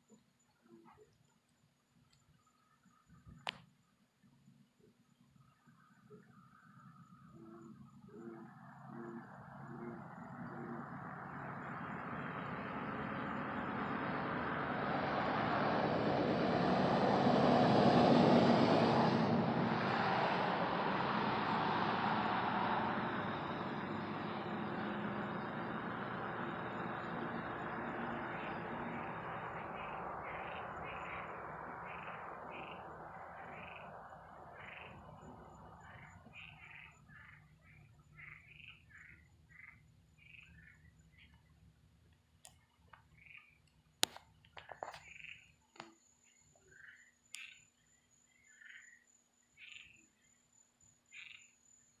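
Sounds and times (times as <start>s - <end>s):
high chirping night creatures: 4.6s - 41.6s, 42.5s - 52.0s
frogs calling: 5.4s - 15.8s, 19.6s - 41.6s, 42.5s - 50.3s, 51.1s - 51.8s
distant rocket rumble: 7.4s - 39.6s.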